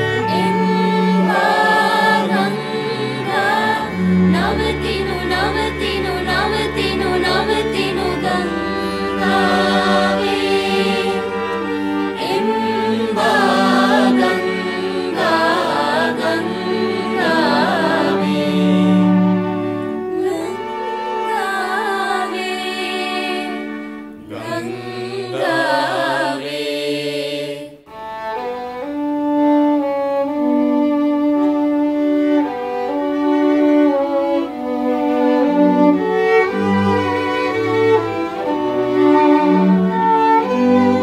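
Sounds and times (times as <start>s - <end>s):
string ensemble playing: 0.0s - 27.0s, 27.7s - 41.0s
mixed choir singing: 0.0s - 27.9s.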